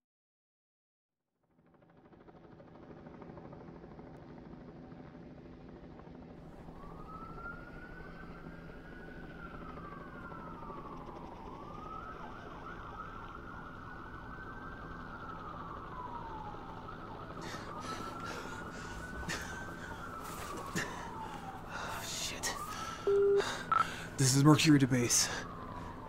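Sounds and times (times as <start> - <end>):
low city rumble: 2.0 - 26.0
police siren wailing: 6.5 - 26.0.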